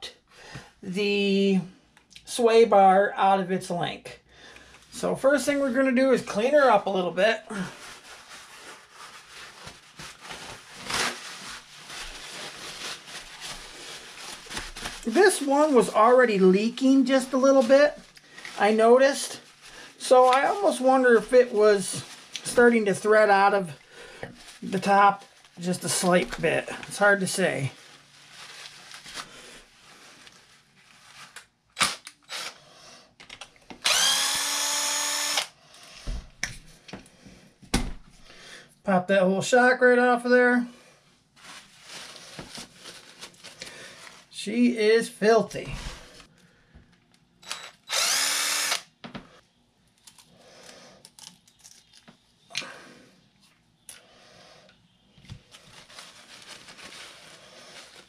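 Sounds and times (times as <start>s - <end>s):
paper towel rustling and rubbing: 5.0s - 31.6s, 41.0s - 46.3s, 55.3s - 58.0s
cordless drill running: 31.8s - 32.6s, 33.8s - 35.6s, 47.4s - 48.9s.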